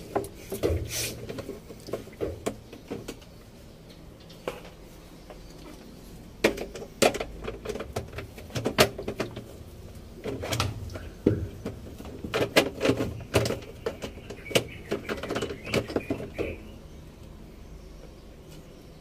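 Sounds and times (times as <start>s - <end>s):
plastic clicks and knocks in drum: 6.4s - 9.5s, 10.2s - 16.6s.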